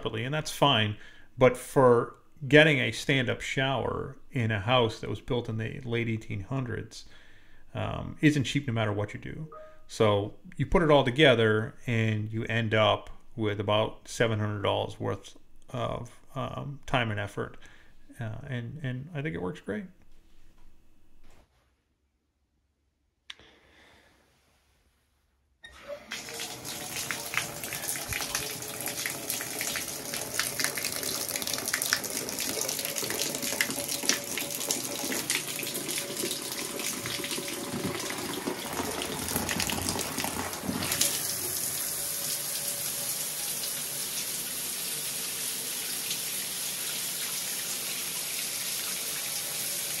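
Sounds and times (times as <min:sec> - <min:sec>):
water splashing into tub: 0:25.8 - 0:42.4.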